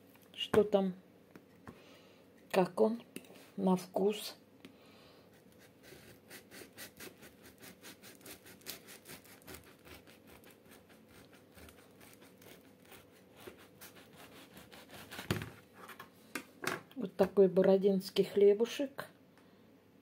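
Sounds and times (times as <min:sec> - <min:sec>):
knife sawing through bread crust: 0:05.3 - 0:15.4.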